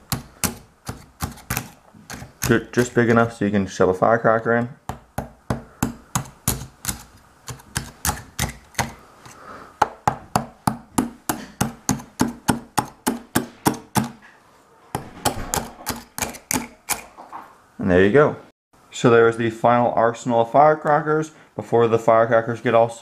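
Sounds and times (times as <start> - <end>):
knife tapping eggshells: 0.0 - 3.3, 4.9 - 14.2, 15.3 - 17.1.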